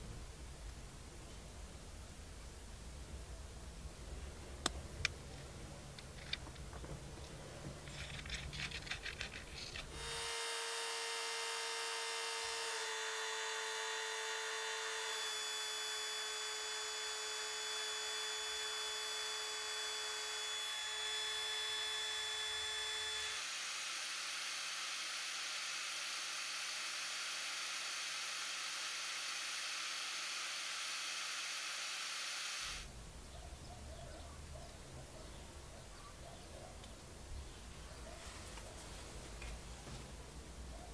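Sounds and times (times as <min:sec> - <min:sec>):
rotary tool grinding foam: 0:07.8 - 0:32.9.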